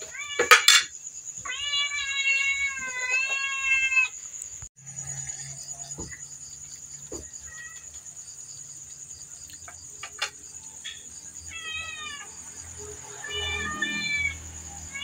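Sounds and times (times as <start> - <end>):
cat meowing: 1.4 - 4.1, 11.5 - 12.3, 13.1 - 15.0.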